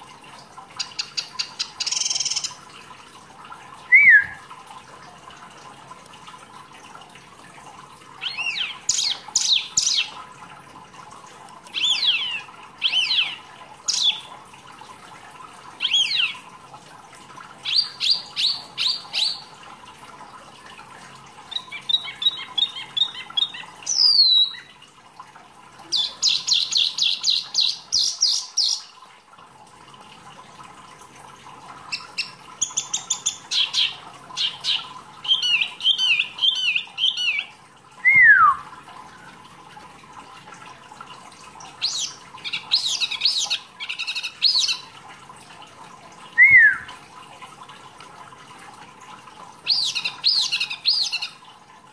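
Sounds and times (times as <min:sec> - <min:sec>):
songbird singing: 0:03.9 - 0:04.4, 0:46.4 - 0:46.9.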